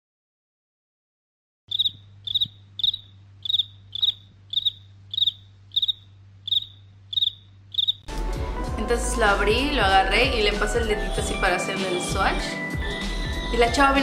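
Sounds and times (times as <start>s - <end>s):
cricket chirping: 1.7s - 8.1s
faint low hum: 1.7s - 8.1s.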